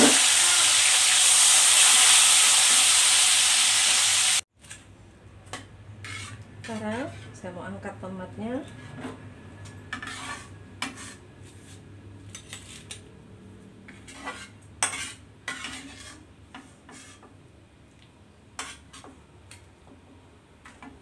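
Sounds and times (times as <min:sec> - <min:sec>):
metal spatula scraping a wok: 0:06.0 - 0:07.4, 0:08.6 - 0:13.0, 0:13.8 - 0:17.4, 0:18.6 - 0:19.1.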